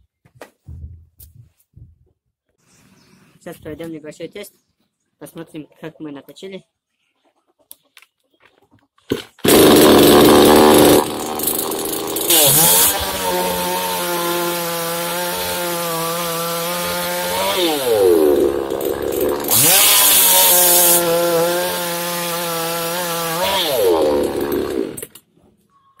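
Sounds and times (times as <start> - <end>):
chainsaw cutting log: 9.1 - 25.2.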